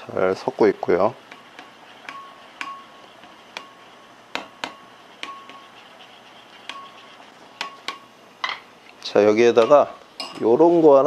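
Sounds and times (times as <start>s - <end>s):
spoon clinking ceramic bowl: 9.6s - 10.5s.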